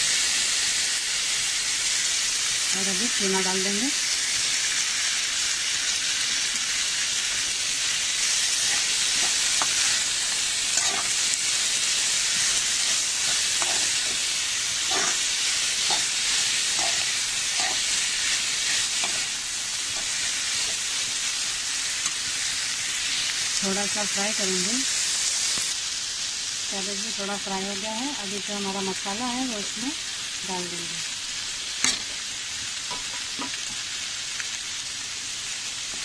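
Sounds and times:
food sizzling in hot oil: 0.0s - 36.0s
metal spoon scraping pan: 10.8s - 11.2s, 12.4s - 20.8s.

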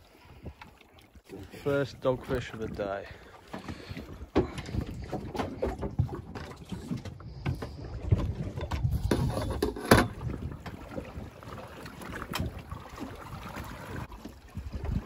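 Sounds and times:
wind buffeting microphone: 3.9s - 15.0s.

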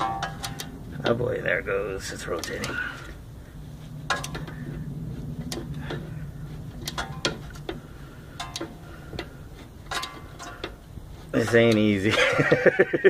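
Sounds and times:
low steady hum: 0.0s - 13.0s
metallic clicks and clinks: 4.0s - 4.6s, 6.8s - 7.8s, 8.4s - 12.1s.

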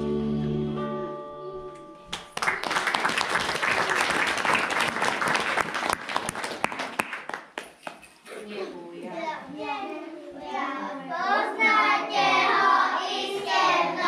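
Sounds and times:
song ending: 0.0s - 2.4s
audience applauding: 2.1s - 8.0s.

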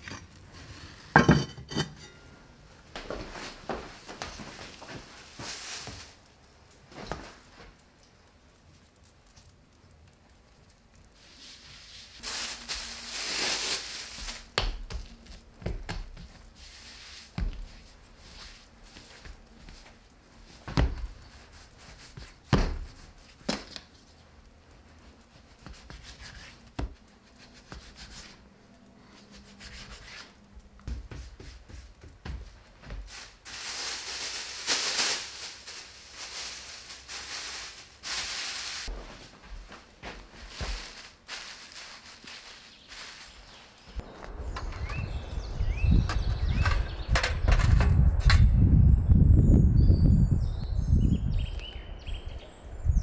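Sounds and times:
dry hissing scraping: 11.0s - 14.5s, 16.4s - 20.6s, 33.0s - 38.9s.

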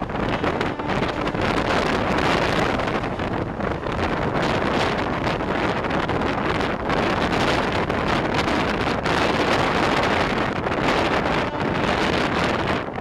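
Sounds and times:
train running noise: 0.0s - 13.0s
wind buffeting microphone: 0.0s - 13.0s.

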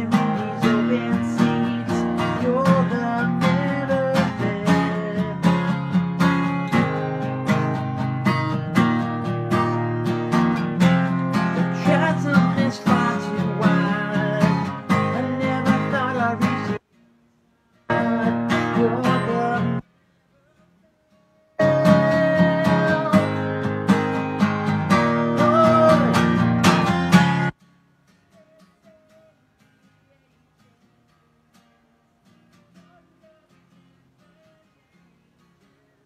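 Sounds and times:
man singing: 0.0s - 16.8s, 17.9s - 19.9s, 21.6s - 27.5s, 32.6s - 34.9s
acoustic guitar strumming: 0.0s - 19.9s, 21.0s - 35.8s.

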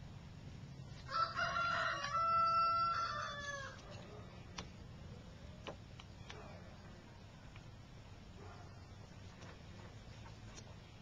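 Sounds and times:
rooster crowing: 1.1s - 3.8s.

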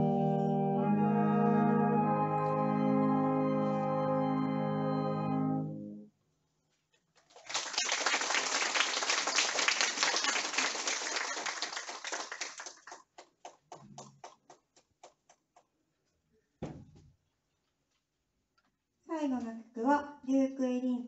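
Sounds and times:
audience applauding: 7.2s - 15.2s.

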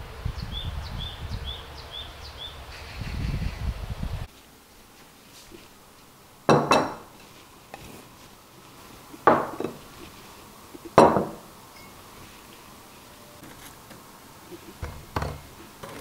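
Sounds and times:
glassware clinking on a table: 6.5s - 7.1s, 9.3s - 9.8s, 11.0s - 12.0s.

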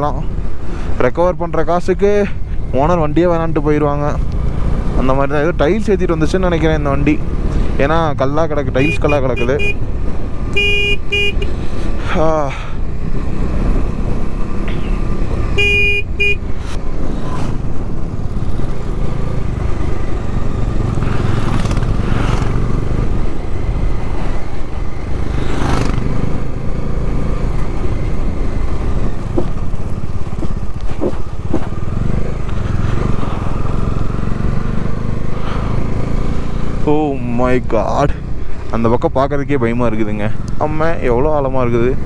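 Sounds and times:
motorcycle engine rumbling: 0.0s - 42.0s
vehicle horn toot: 8.8s - 9.9s, 10.5s - 11.5s, 15.6s - 16.5s.

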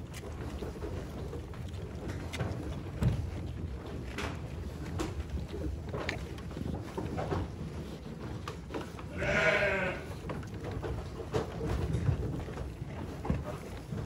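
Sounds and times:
sheep chewing and rustling hay: 0.0s - 14.0s
sheep bleating: 9.1s - 10.2s.

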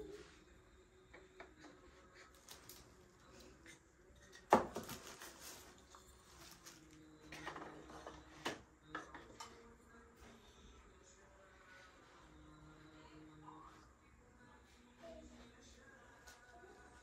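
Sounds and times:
bottles and jars knocking on shelf: 4.5s - 4.9s.

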